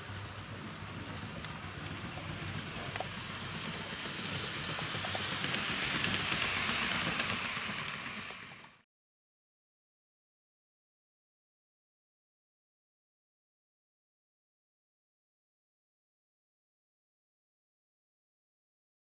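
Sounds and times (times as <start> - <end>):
model trains rattling on track: 0.0 - 8.8.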